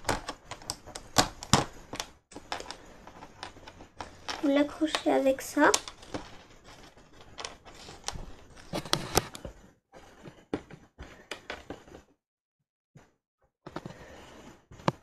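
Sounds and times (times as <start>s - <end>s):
plastic bricks clicking together: 0.0s - 8.3s.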